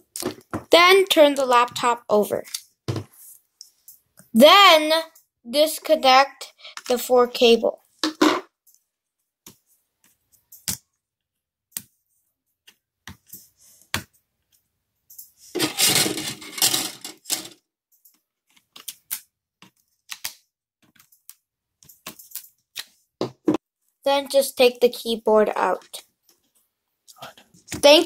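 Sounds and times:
rustling handling noise: 0:15.2 - 0:17.6.

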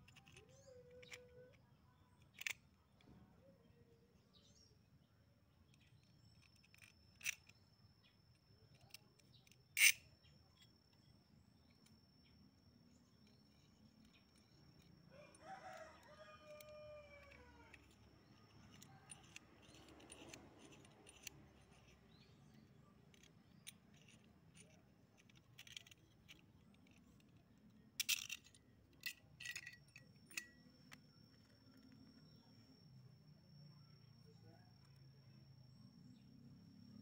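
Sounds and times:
small steel parts clinking: 0:00.0 - 0:02.7, 0:05.7 - 0:32.2.

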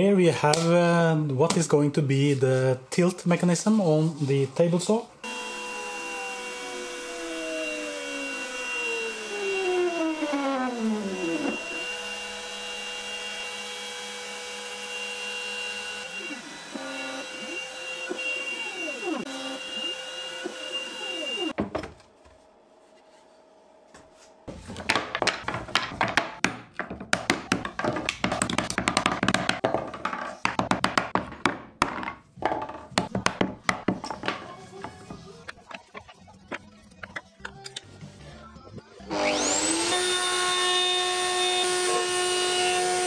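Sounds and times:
router spindle whine: 0:05.2 - 0:21.5, 0:39.1 - 0:43.0.

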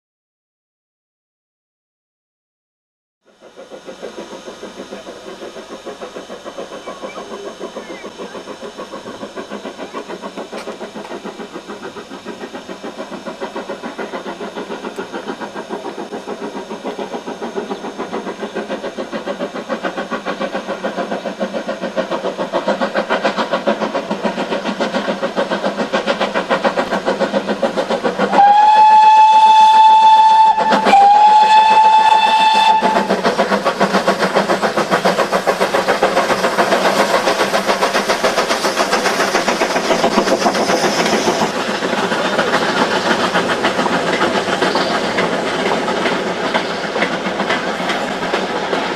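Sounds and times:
steam locomotive exhaust beats: 0:03.2 - 0:48.9
steam whistle blasts: 0:28.3 - 0:33.2.

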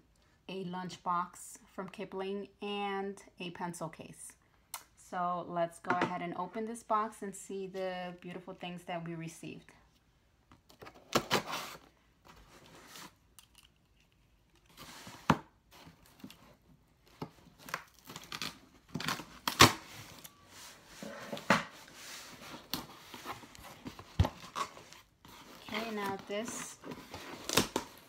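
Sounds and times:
cardboard rustling: 0:14.6 - 0:28.0
scissors cutting packing tape: 0:27.1 - 0:28.0.

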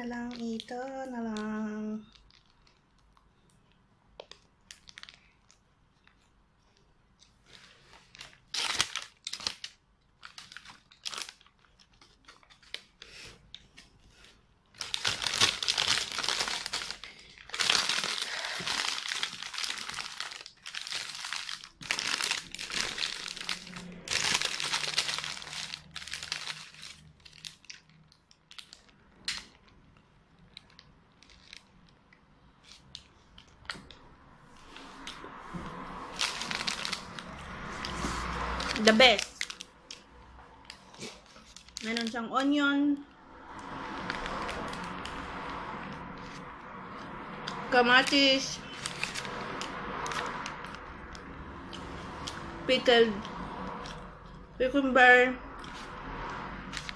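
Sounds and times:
paper wrapper crinkling: 0:00.2 - 0:03.2, 0:04.3 - 0:34.0, 0:36.0 - 0:42.3, 0:48.0 - 0:51.3.

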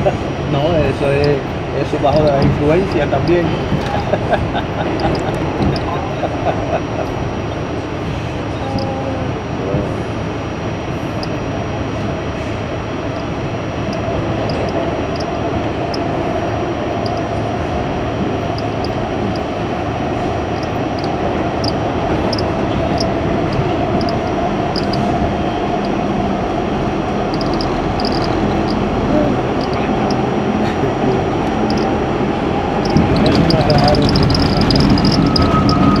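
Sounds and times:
subway wheels on rail: 0:00.0 - 0:36.0
light ticks: 0:05.0 - 0:05.9, 0:20.6 - 0:25.1, 0:27.3 - 0:28.9, 0:29.6 - 0:30.2, 0:31.4 - 0:31.9, 0:32.8 - 0:36.0.

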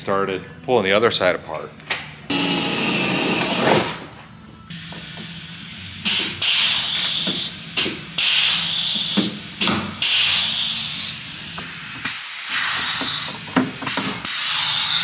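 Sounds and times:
rivet gun air hiss: 0:06.0 - 0:15.0.

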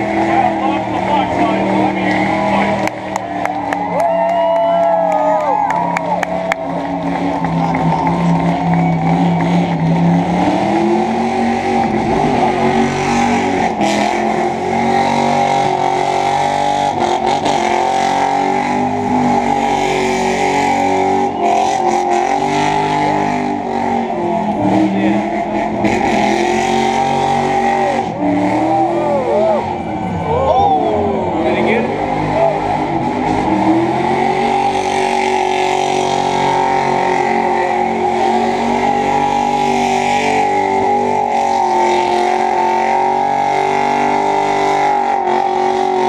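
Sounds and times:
car engine revving hard: 0:00.0 - 0:04.1, 0:04.8 - 0:46.0.

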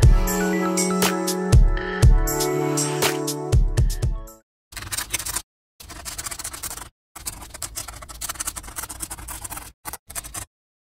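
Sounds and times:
pen scratching on paper: 0:04.7 - 0:10.5.

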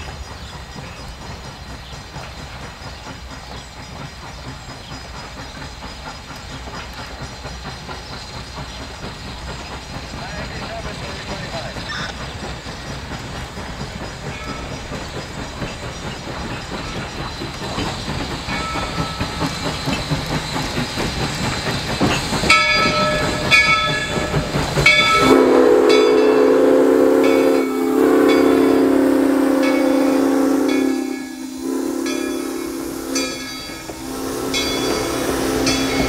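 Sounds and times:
steam locomotive running hiss: 0:00.0 - 0:36.0
steam whistle blowing: 0:25.1 - 0:36.0.

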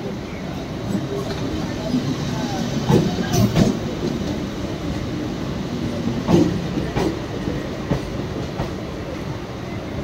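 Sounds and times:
electric train rumbling past: 0:00.0 - 0:10.0
train running gear clunks: 0:02.8 - 0:04.4, 0:06.2 - 0:08.8.

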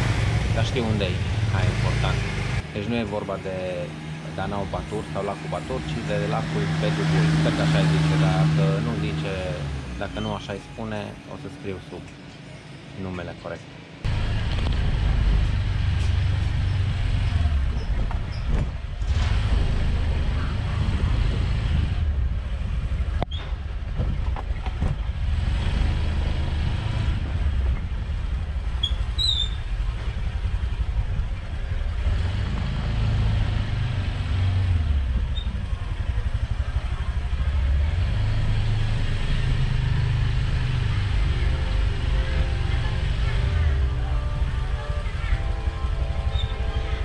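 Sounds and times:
motor scooter engine rumble: 0:14.0 - 0:47.0.

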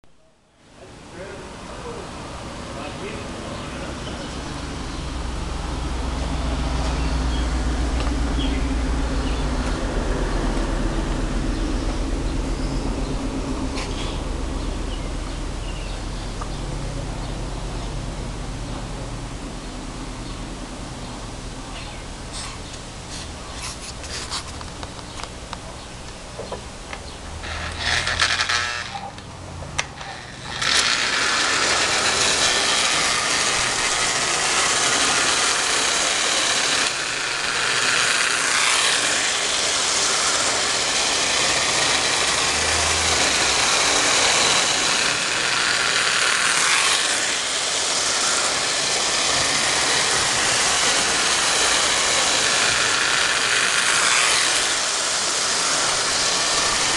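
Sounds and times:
toy train running on track: 0:27.4 - 0:29.2, 0:29.8 - 0:56.9.

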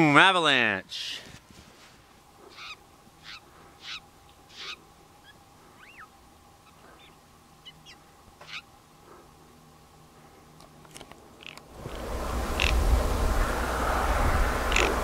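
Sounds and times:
jay harsh calls: 0:02.4 - 0:08.7, 0:14.7 - 0:15.0
faint bird chips: 0:02.5 - 0:08.7.

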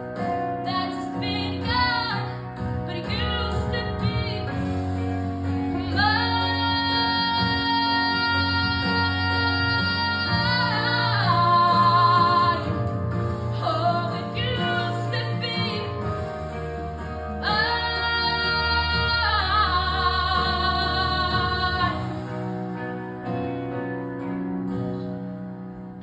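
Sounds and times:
low instrumental backing: 0:00.0 - 0:26.0
girl singing through a microphone: 0:00.6 - 0:04.7, 0:05.7 - 0:12.8, 0:13.6 - 0:16.3, 0:17.4 - 0:22.3.

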